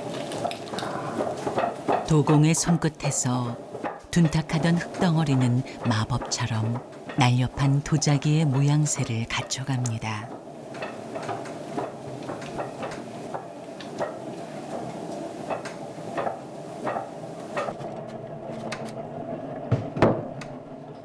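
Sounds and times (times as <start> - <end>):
potter's wheel humming: 0.0 - 21.0
louder knocks: 19.7 - 20.4.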